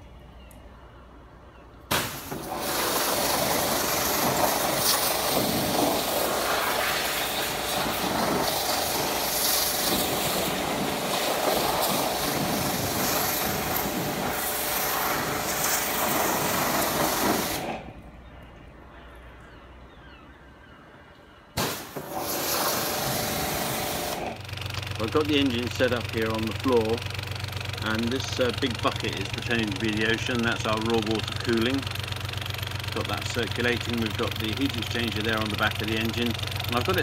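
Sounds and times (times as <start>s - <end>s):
pressure washer spray hiss: 1.9s - 17.8s, 21.6s - 24.3s.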